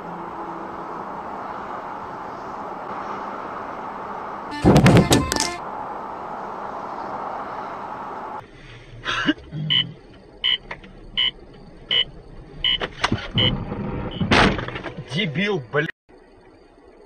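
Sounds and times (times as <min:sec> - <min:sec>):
car cabin road noise: 0:00.0 - 0:17.0
short knocks: 0:04.6 - 0:05.6
repeating electronic beep: 0:09.6 - 0:12.8.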